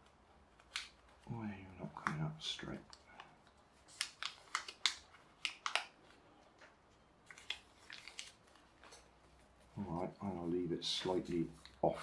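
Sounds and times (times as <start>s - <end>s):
paper folding crackles: 0.0s - 12.0s.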